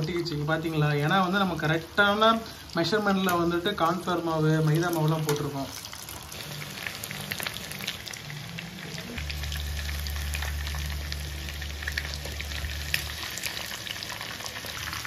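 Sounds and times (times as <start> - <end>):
chicken deep-frying in oil: 0.0 - 15.0
low steady hum: 6.5 - 14.5.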